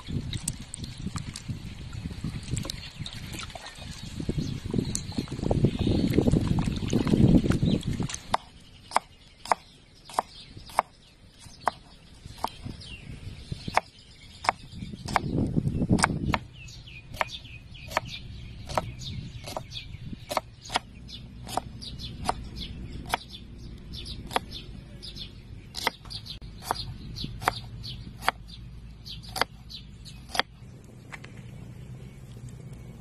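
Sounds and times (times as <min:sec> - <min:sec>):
falling bird chirps: 0:07.2 - 0:33.0
low rumble: 0:14.8 - 0:33.0.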